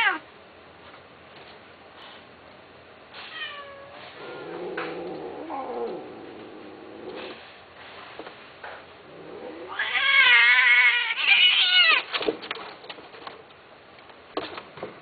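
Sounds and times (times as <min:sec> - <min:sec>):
cat yowling: 0:00.0 - 0:00.2, 0:03.2 - 0:06.1, 0:09.3 - 0:12.1.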